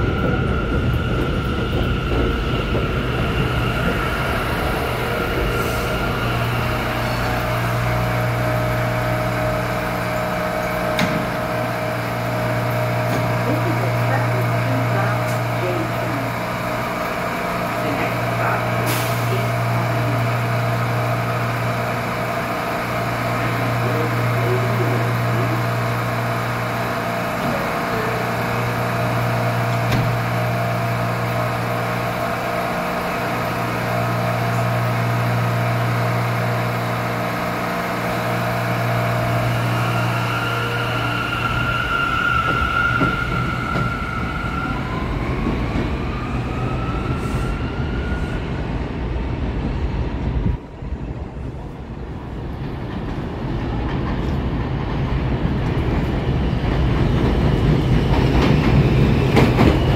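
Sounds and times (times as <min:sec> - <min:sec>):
train equipment humming: 0:00.0 - 0:46.9
train motors whining: 0:00.0 - 0:47.5.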